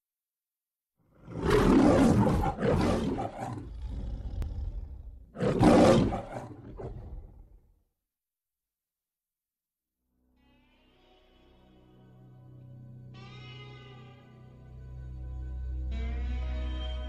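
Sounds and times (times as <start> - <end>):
lion roaring: 1.1 - 7.6
lion grunt: 1.2 - 7.6.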